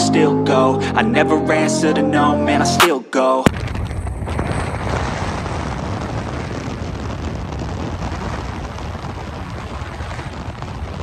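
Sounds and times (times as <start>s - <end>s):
wind buffeting microphone: 3.6s - 11.0s.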